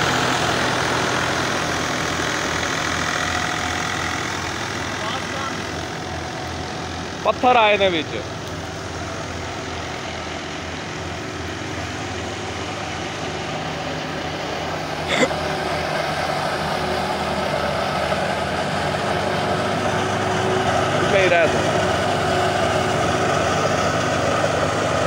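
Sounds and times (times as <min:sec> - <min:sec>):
tractor engine and thresher running: 0:00.0 - 0:25.0.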